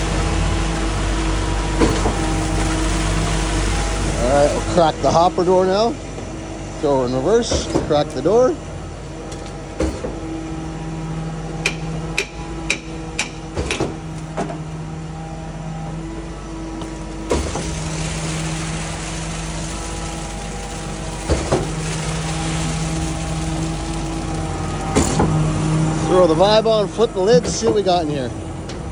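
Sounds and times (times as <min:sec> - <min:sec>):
concrete pouring onto ground: 0:00.0 - 0:05.4, 0:17.3 - 0:27.0
heavy pump clunk: 0:00.0 - 0:15.0, 0:16.7 - 0:28.9
concrete pump engine drone: 0:00.0 - 0:28.9
sharp metal knocks: 0:11.6 - 0:14.0.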